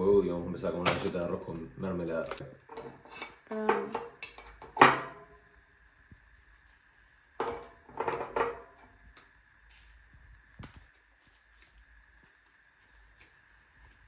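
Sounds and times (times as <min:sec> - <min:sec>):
dishes and cutlery clinking: 0:07.4 - 0:08.8.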